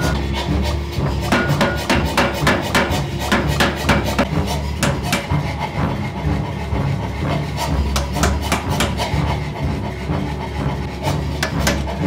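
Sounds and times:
hammer striking hot steel: 1.2 - 5.4, 7.9 - 9.2, 11.4 - 12.0.

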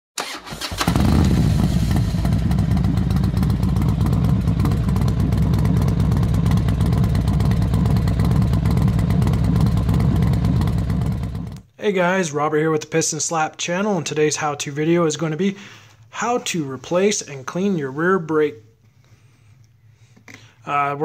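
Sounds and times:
motorcycle engine running: 0.7 - 11.6.

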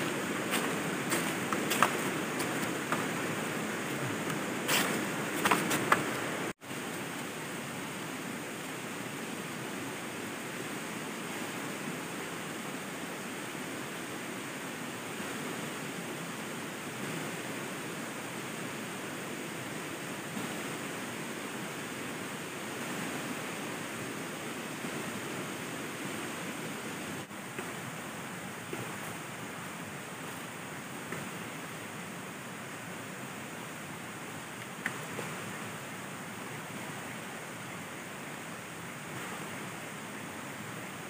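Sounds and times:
river water rushing: 0.0 - 41.0.

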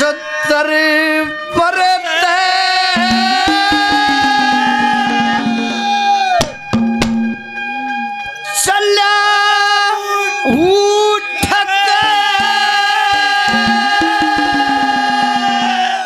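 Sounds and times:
hand drum strokes: 3.0 - 8.0, 12.5 - 16.0
folk melody: 3.0 - 8.7, 10.0 - 16.0.

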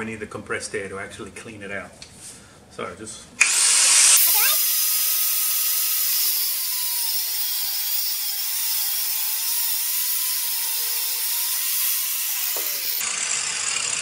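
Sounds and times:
angle grinder cutting hose: 3.4 - 14.0.

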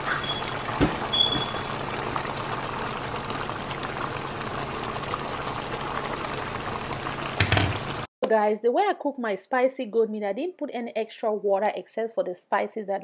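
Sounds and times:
stew bubbling and popping: 0.0 - 8.1.

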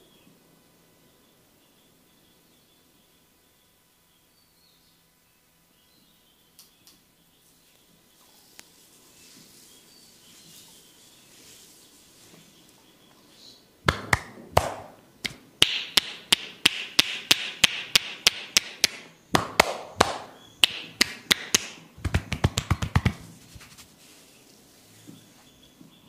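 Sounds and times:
hands tapping on head: 13.9 - 23.8.

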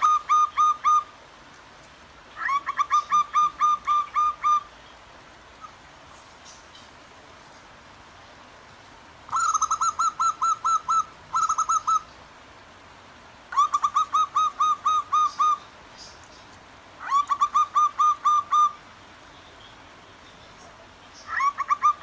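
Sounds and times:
doves cooing: 0.0 - 1.1, 2.4 - 4.7, 9.3 - 12.1, 13.5 - 15.7, 17.0 - 18.8, 21.2 - 22.0
flowing stream water: 0.0 - 22.0.

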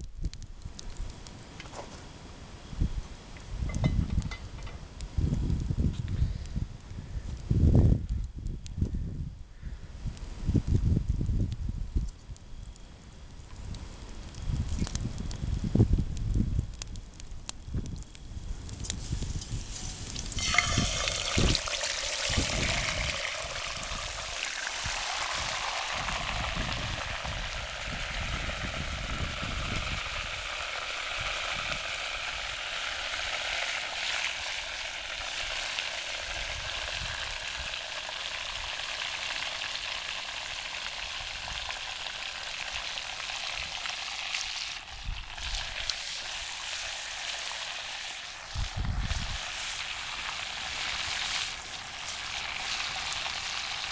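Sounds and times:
meat sizzling in a pot: 17.6 - 53.9.

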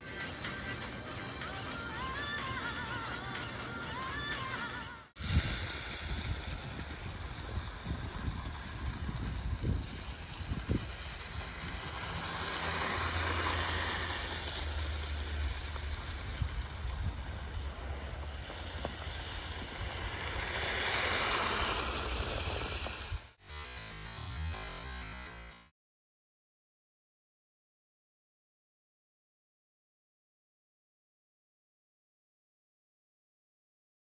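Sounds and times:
toy snowmobile motor: 0.4 - 25.7
wind on microphone: 5.2 - 23.3.

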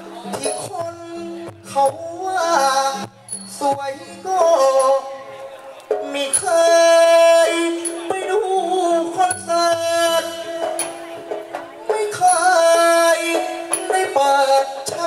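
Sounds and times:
amplified instrumental accompaniment: 0.0 - 15.0
person singing into microphone: 0.0 - 15.0
sharp percussion strikes: 0.2 - 15.0.

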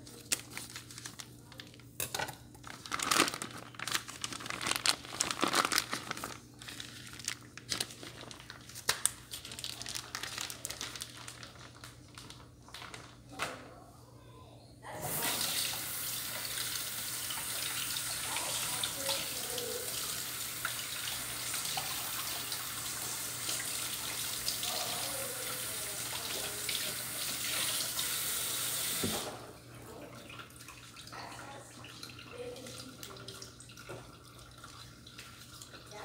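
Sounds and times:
tap running into a sink: 28.7 - 29.4.

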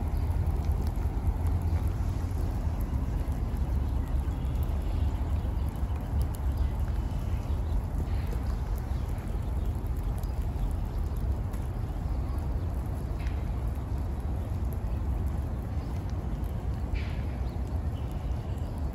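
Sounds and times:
rain dripping: 0.0 - 18.9
steady low rumble: 0.0 - 18.9.

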